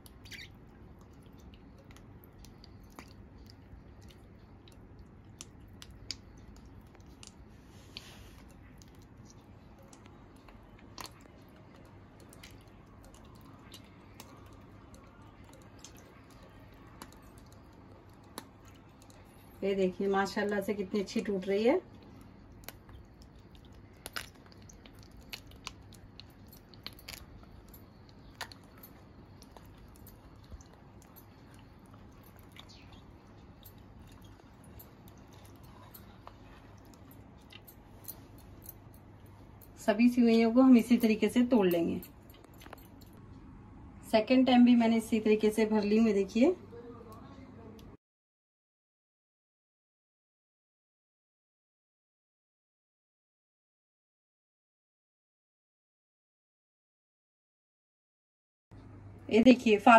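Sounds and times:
batter squelching: 0.0 - 39.4
low steady hum: 0.0 - 48.0, 58.8 - 59.9.

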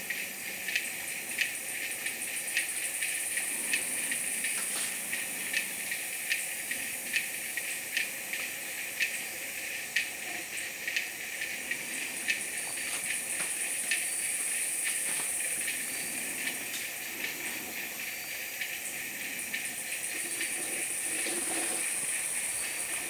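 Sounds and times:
high-pitched insect chorus: 0.0 - 23.0
lower insect chirring: 0.0 - 23.0.

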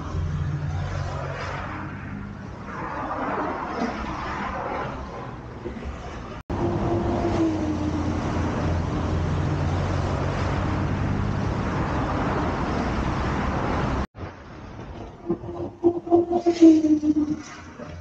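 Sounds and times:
road noise rush: 0.0 - 18.0
passing engines humming: 4.5 - 14.1.

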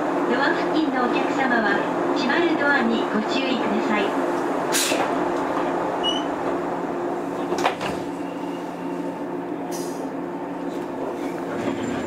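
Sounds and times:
electric train equipment humming: 0.0 - 12.0.

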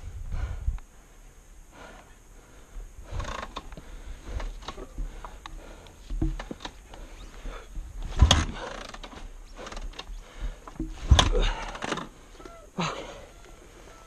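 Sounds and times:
kick-start thumps: 3.1 - 12.1.

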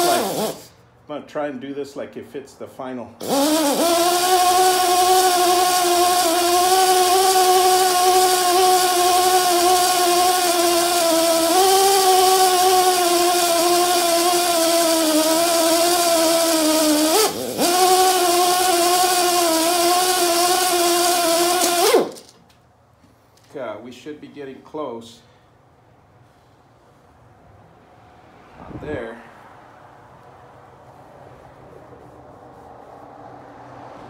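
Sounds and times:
drill motor humming: 0.0 - 0.7, 3.2 - 22.3.

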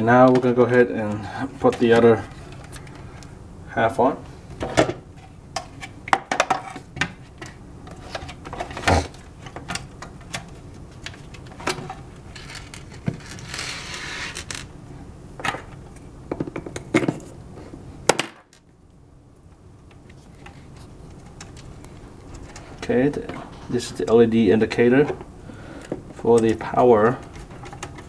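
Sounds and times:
rustling scrape: 12.3 - 14.6
plastic parts clicking and clattering: 25.8 - 28.0.

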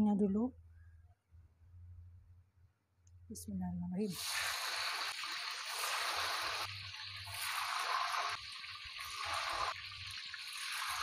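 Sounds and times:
tofu sizzling in hot oil: 4.1 - 11.0.

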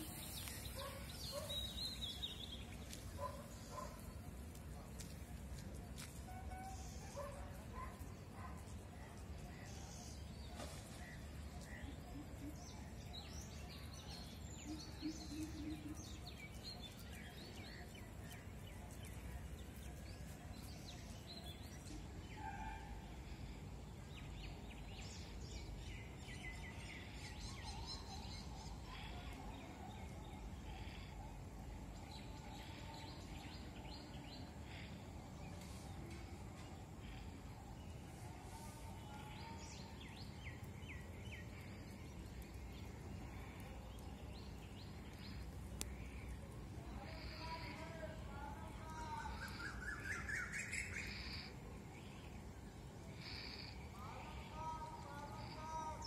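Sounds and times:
birds chirping: 0.0 - 22.7
low outdoor background noise: 0.0 - 56.0.

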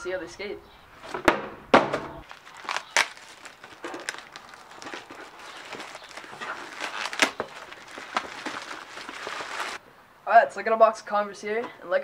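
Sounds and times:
plastic bag rustling: 2.2 - 9.8.

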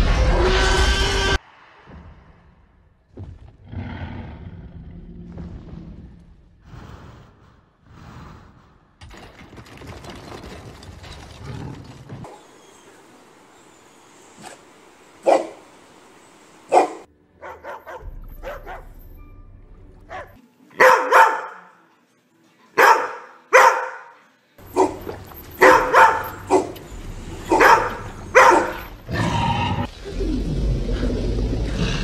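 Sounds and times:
dogs barking: 14.4 - 15.7, 16.6 - 18.9, 20.1 - 21.8, 22.8 - 29.9
low rumble: 26.3 - 32.0.

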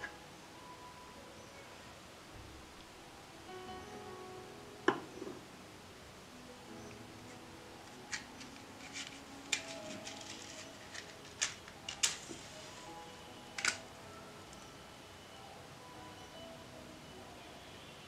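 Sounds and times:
soft background music: 0.0 - 18.0
match striking: 7.3 - 12.6.

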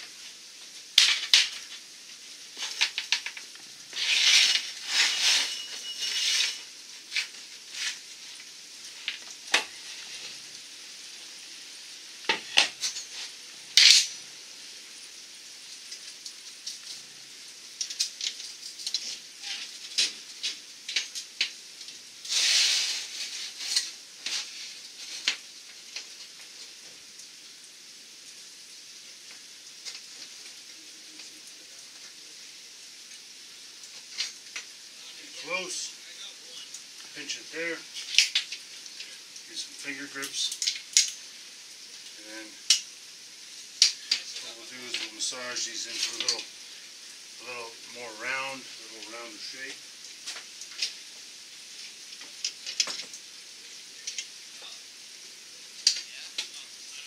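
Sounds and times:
metal band scraping and rustling: 3.9 - 8.0.

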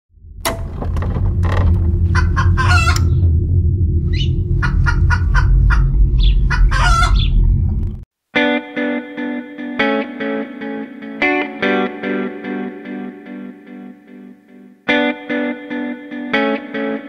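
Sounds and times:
low rumble: 0.1 - 8.1.

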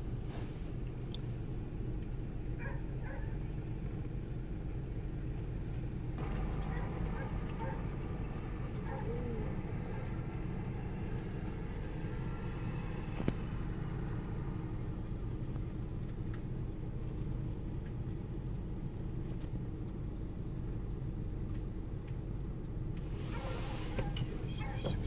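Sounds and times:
vehicle engine idling: 0.0 - 25.0.

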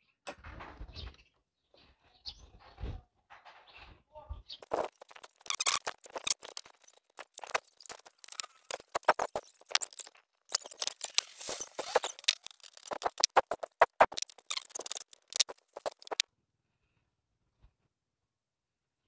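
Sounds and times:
hand tool clicking and scraping: 4.6 - 16.2.

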